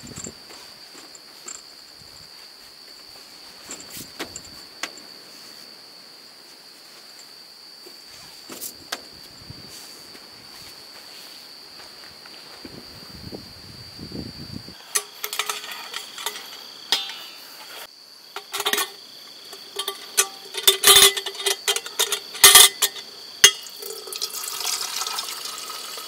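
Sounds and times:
steel kettle clinking: 14.8 - 17.8, 18.4 - 26.0
water running into kettle: 19.8 - 26.0.

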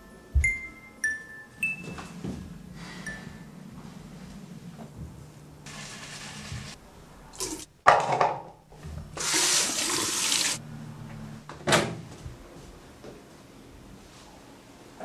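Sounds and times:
steady low hum: 1.7 - 5.7
water running from a tap: 5.7 - 6.8, 9.2 - 10.6.

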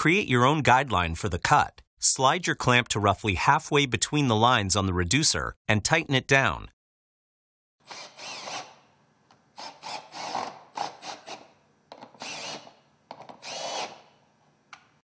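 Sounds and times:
cordless drill driving bolts: 7.9 - 8.8, 9.6 - 14.1.

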